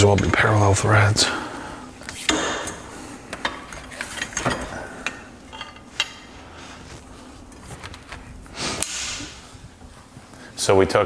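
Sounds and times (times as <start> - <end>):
metal fittings and tools clinking: 3.4 - 6.2.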